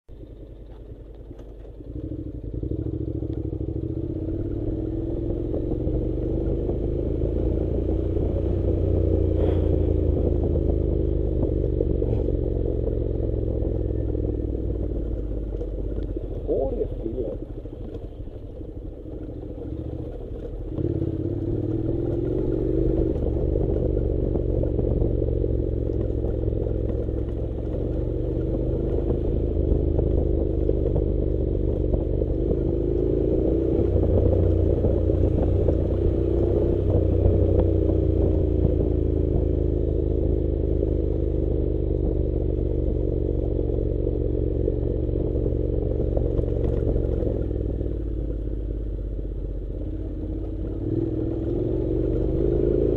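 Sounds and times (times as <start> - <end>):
gravel clattering under tyres: 0.1 - 4.2, 13.7 - 39.6, 40.9 - 52.9
motorcycle engine running: 0.1 - 52.9.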